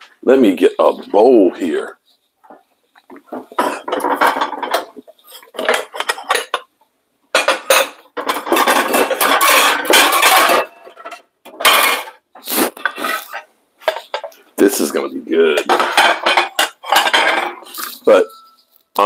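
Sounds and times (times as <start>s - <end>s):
dishes clattering: 2.4s - 6.7s, 7.3s - 12.2s, 12.8s - 18.8s.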